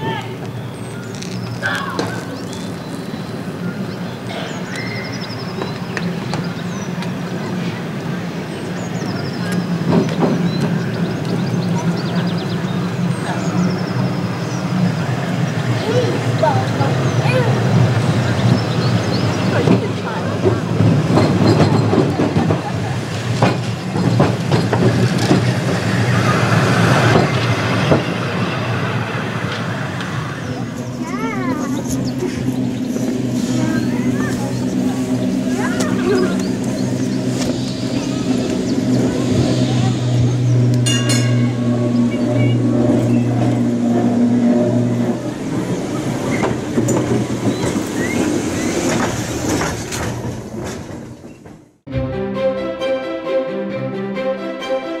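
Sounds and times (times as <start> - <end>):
tram wheels clicking over rail joints: 0.1 - 51.9
wheels clicking over rail: 19.3 - 28.4, 40.6 - 51.7.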